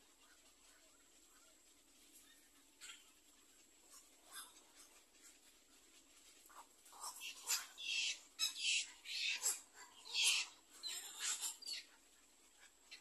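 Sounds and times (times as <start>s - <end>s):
heron chicks squawking: 2.1s - 5.8s, 6.4s - 13.0s.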